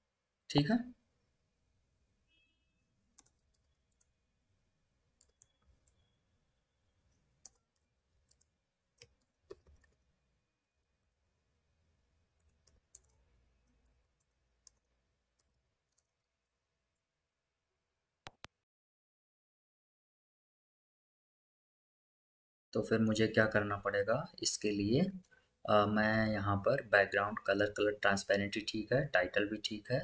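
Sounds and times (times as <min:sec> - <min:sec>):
keyboard typing clicks: 0:03.2 - 0:04.1, 0:05.2 - 0:06.1, 0:07.4 - 0:10.0, 0:12.4 - 0:16.2.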